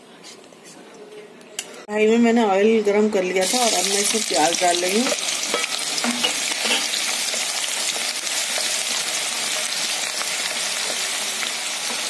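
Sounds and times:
onions sizzling in hot oil: 3.4 - 12.0.

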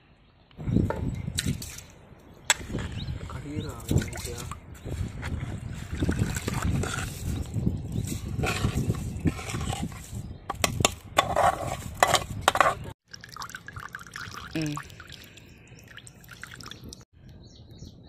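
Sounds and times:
steel ladle scraping metal plate: 6.4 - 12.9
oil trickling into water: 13.0 - 17.0.

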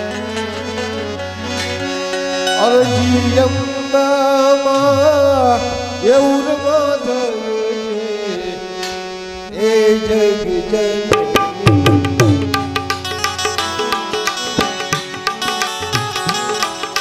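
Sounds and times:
tabla playing: 0.0 - 7.1, 10.8 - 17.0.

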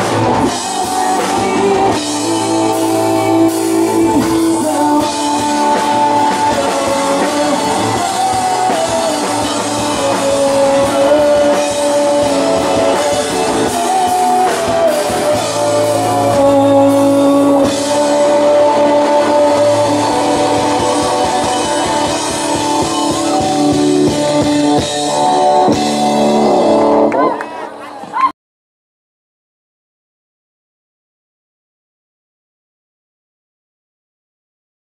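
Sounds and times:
held guitar melody bending: 0.0 - 27.2
rock band playing live: 0.0 - 28.3.

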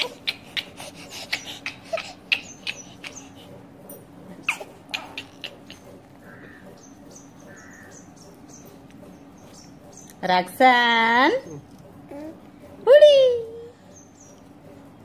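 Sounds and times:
kissing smacks: 0.0 - 3.2, 4.4 - 5.8.

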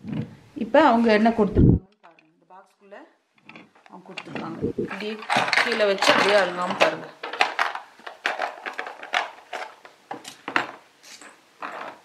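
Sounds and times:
small accessories clattering on table: 3.4 - 12.0.

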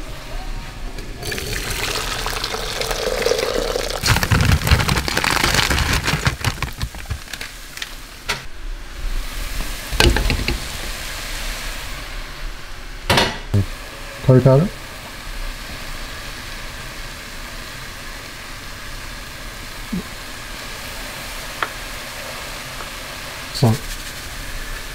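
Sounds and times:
splashing and sputtering: 1.2 - 7.7
water pouring into pan: 1.2 - 7.7
cookware knocking: 10.0 - 10.8.

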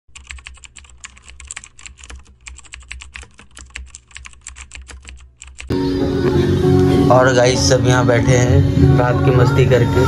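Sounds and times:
keyboard typing clicks: 0.1 - 5.7
music: 5.7 - 10.0.

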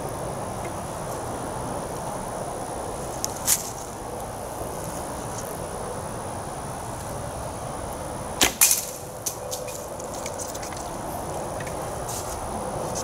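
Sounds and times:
arrow striking clay target: 8.4 - 9.4.

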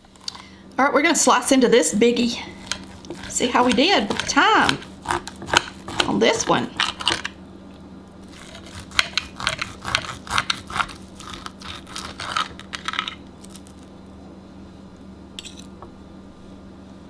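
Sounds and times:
knife sawing through steak: 2.6 - 6.2, 8.3 - 12.7
knife scraping a plate: 2.6 - 7.3, 8.3 - 13.2.

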